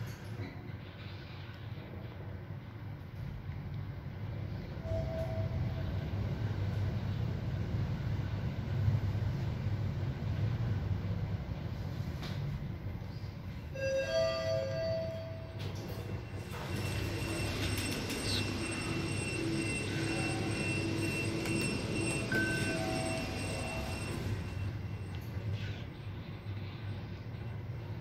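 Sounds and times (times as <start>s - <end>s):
elevator low hum: 0.0s - 28.0s
two-note arrival chime: 16.4s - 25.0s.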